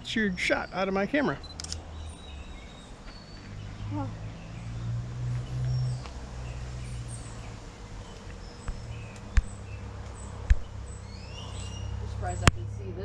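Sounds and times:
bird chirps: 0:00.0 - 0:12.6
steady low hum: 0:00.0 - 0:13.0
sharp clicks: 0:01.4 - 0:01.8.

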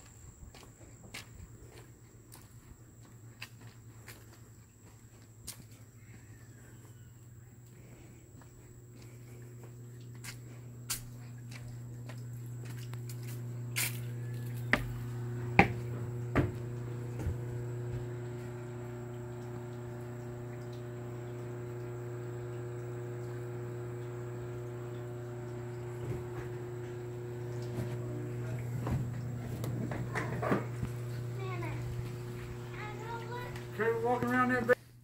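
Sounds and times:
low mechanical hum: 0:00.0 - 0:35.0
footsteps on wooden steps: 0:00.5 - 0:05.8, 0:07.7 - 0:18.2, 0:26.0 - 0:34.4.

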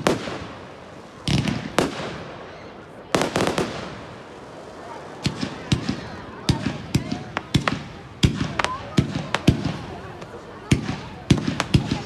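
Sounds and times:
firework shells bursting: 0:05.2 - 0:12.0.

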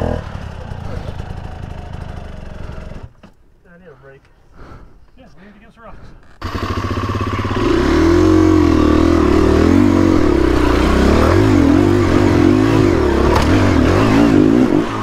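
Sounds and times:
dirt bike engine revving: 0:00.0 - 0:03.1, 0:06.4 - 0:15.0.

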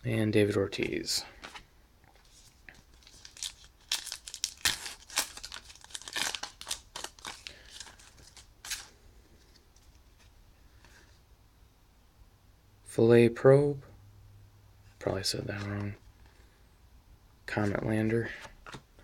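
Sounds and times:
cards being handled: 0:00.7 - 0:11.1, 0:17.6 - 0:19.0
foil wrapper tearing and crinkling: 0:03.0 - 0:08.9.

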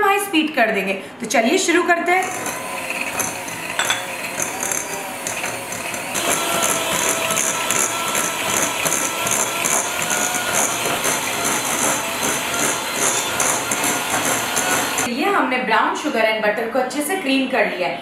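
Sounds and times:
electric hand mixer running: 0:02.1 - 0:15.1.

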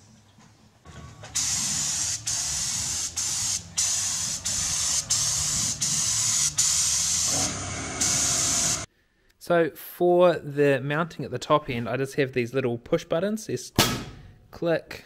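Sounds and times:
spray gun hissing: 0:01.3 - 0:08.9.

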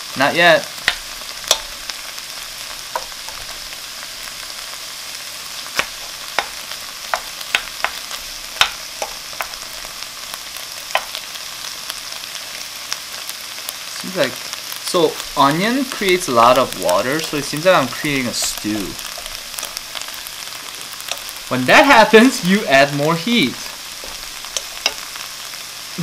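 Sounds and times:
food sizzling in a wok: 0:00.0 - 0:26.0
wooden spoon knocking pan: 0:00.8 - 0:01.8, 0:02.9 - 0:03.6, 0:05.8 - 0:09.7, 0:10.9 - 0:11.2, 0:24.0 - 0:25.1.

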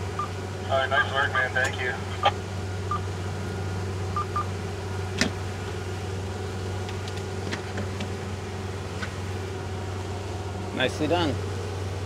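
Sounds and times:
outboard motors droning: 0:00.0 - 0:12.0.

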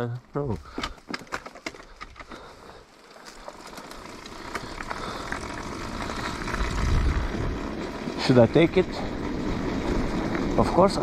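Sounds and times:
dirt bike riding noise: 0:00.2 - 0:11.0.

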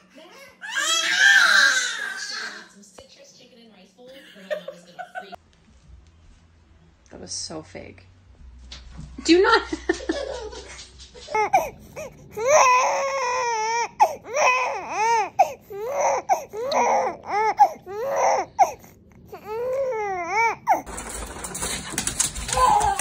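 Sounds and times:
baby crying: 0:00.0 - 0:02.8, 0:11.3 - 0:20.9, 0:22.5 - 0:23.0.

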